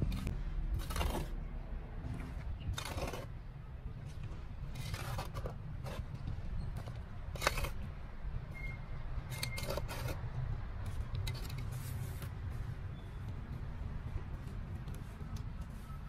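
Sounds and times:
trowel scraping soil: 0.0s - 1.4s, 2.2s - 3.4s, 4.7s - 6.1s, 6.7s - 7.8s, 9.3s - 10.2s
steady low rumble: 0.0s - 9.3s.

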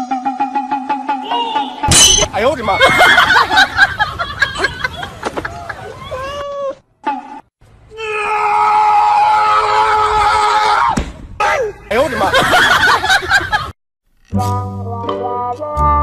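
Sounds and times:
music: 14.2s - 16.0s.

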